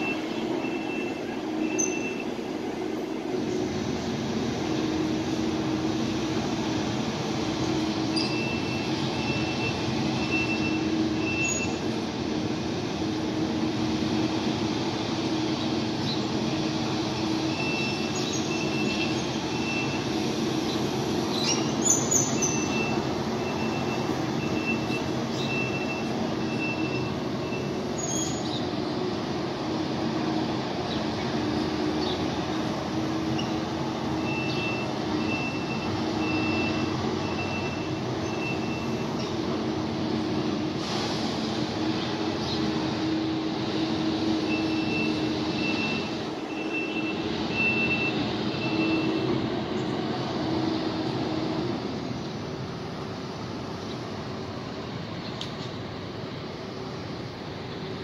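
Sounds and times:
reversing alarm beeping: 0.0 - 2.7, 7.9 - 11.9, 17.2 - 20.5, 21.4 - 28.5, 33.2 - 39.3, 44.2 - 49.5
heavy construction machinery running: 0.0 - 58.0.

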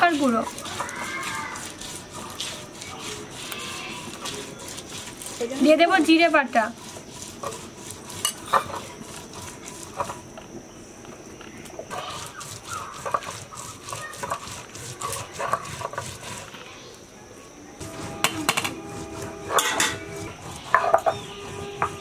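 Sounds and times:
metal spoon scraping steel plate: 7.2 - 10.2, 18.2 - 22.0.

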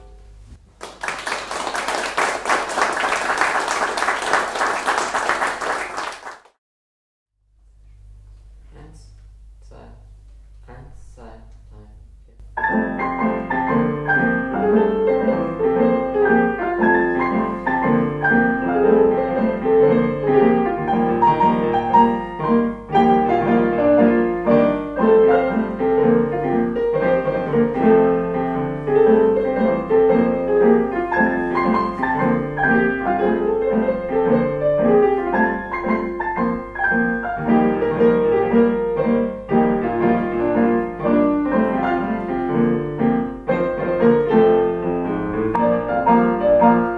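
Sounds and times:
piano music: 0.0 - 0.4, 12.5 - 46.9.

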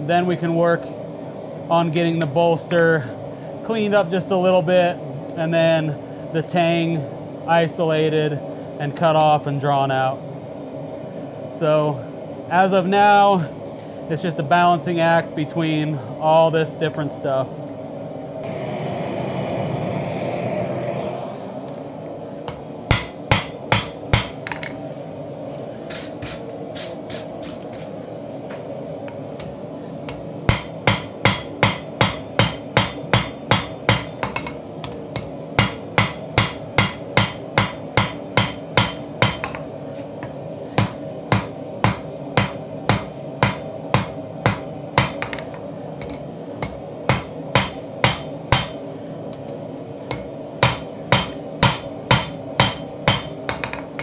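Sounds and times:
steady roar: 18.4 - 22.2
hammer striking steel on anvil: 22.5 - 24.8, 30.5 - 34.6, 35.2 - 39.7, 40.8 - 48.9, 50.1 - 54.0.

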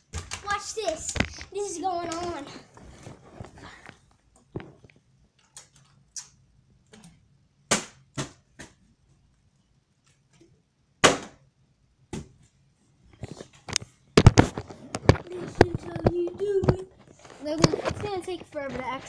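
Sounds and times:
plastic bottles landing on floor: 11.0 - 11.4.

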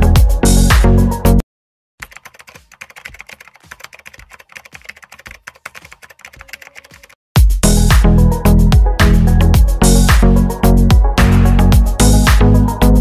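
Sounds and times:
keyboard typing clicks: 2.0 - 7.2
loud music: 7.4 - 13.0.

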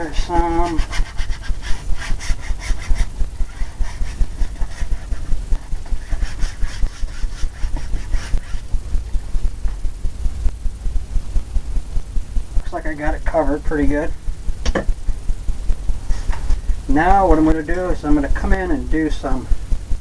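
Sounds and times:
paintbrush scrubbing on canvas: 0.0 - 8.7.

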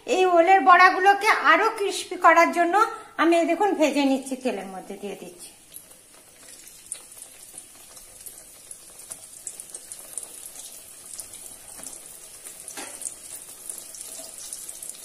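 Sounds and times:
fritters sizzling in hot oil: 4.2 - 15.0.

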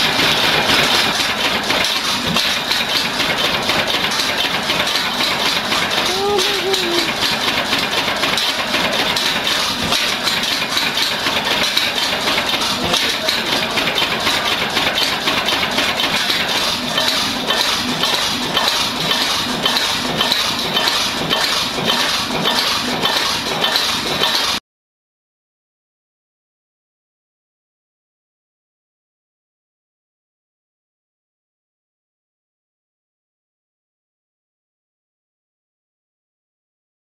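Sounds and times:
metallic clicking clatter: 0.0 - 6.2, 7.0 - 24.6
stationary engine running: 0.0 - 24.6.

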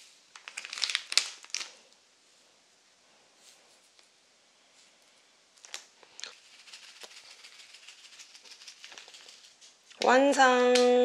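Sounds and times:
faint small crackles: 0.3 - 2.0, 4.9 - 6.4, 8.4 - 10.0.

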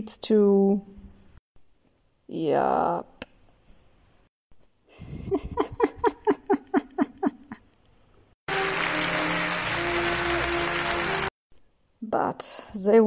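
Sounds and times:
music: 8.5 - 11.3
applause: 8.5 - 11.4.

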